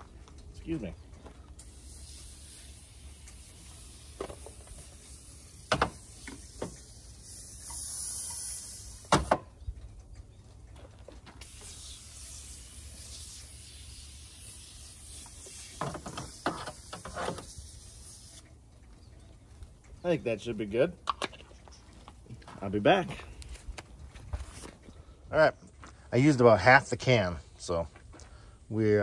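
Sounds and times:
aerosol can spraying: 1.6s - 9.4s, 11.4s - 18.4s.

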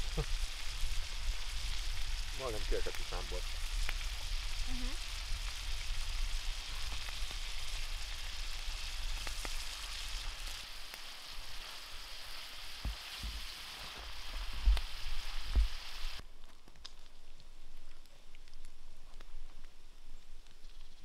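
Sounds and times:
meat and onion sizzling in pan: 0.0s - 16.2s.

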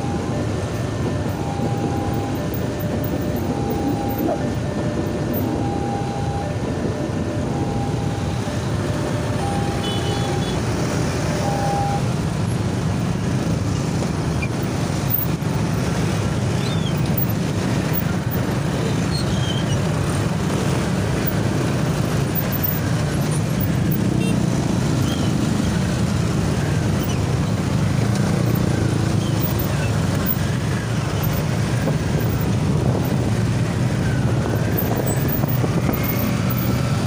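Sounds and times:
motorcycle and rickshaw engines in traffic: 0.0s - 37.0s.

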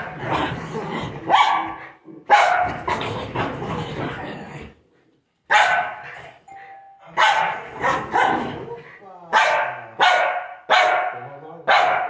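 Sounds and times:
small dog barking: 1.3s - 2.7s, 5.5s - 6.0s, 7.2s - 8.5s, 9.3s - 12.0s.

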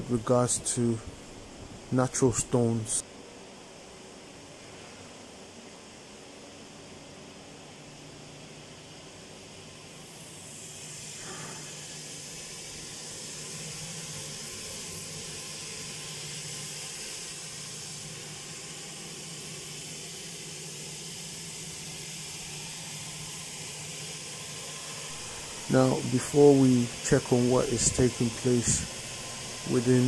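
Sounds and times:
stone-cutting machine hiss: 9.5s - 30.0s.

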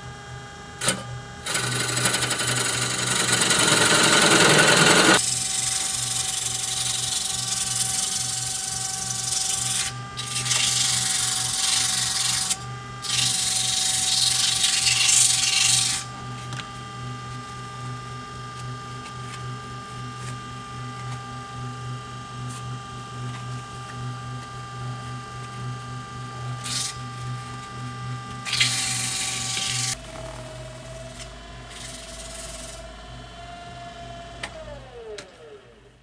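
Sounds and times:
lathe motor hum: 0.2s - 36.0s
sandpaper hissing on spinning wood: 2.0s - 16.1s, 26.6s - 27.0s, 31.7s - 32.8s.

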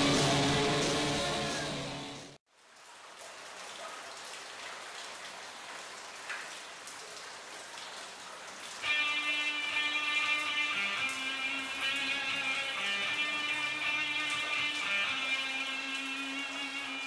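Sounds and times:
electric guitar playing: 8.8s - 17.0s.

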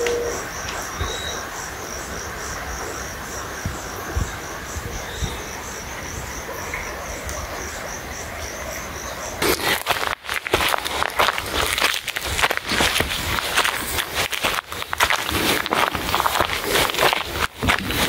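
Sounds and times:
cricket chirping: 0.0s - 18.0s.

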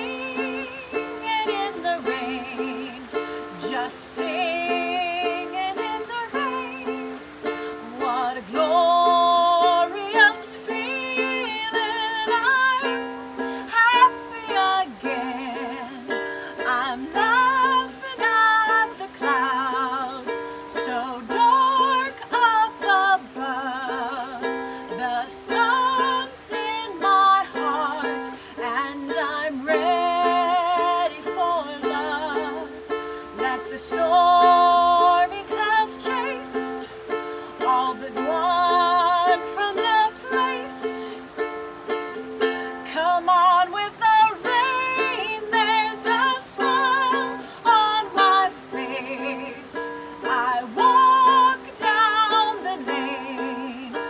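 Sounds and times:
ukulele strumming: 0.0s - 54.0s
woman singing: 0.0s - 54.0s.

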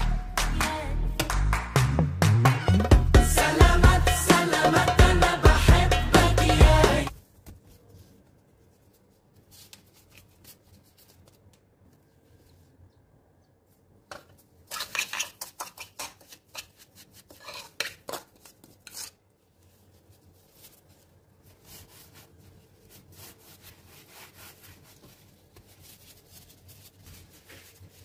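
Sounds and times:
metal spoon scraping wooden bowl: 17.3s - 19.2s
dough rustling in seeds: 18.3s - 28.0s.

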